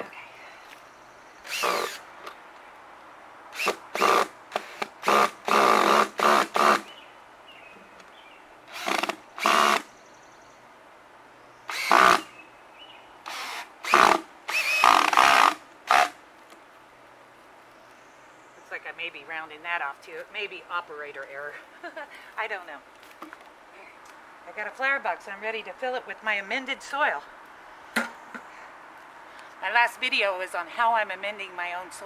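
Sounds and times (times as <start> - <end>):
cordless drill driving screws into wood: 1.5 - 2.0, 3.6 - 6.9, 8.7 - 9.9, 11.7 - 12.3, 13.3 - 16.2.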